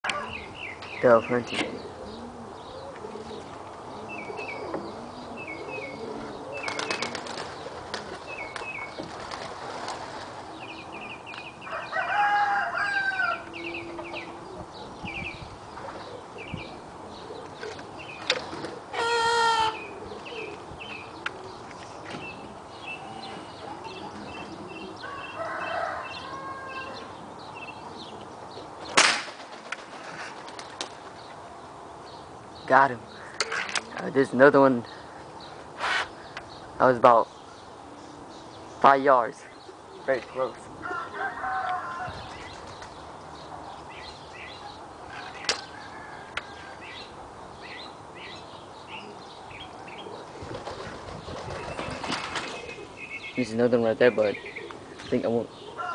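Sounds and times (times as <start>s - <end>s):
small birds chirping: 0.0s - 12.5s, 13.3s - 29.0s, 30.2s - 55.9s
airgun shot: 29.0s - 29.5s.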